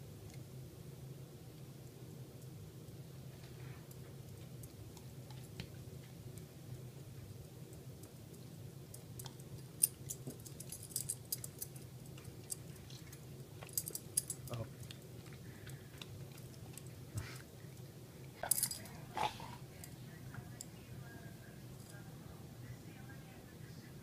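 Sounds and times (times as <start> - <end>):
dog collar tags jingling: 9.8 - 11.8, 13.6 - 14.5, 18.4 - 19.0.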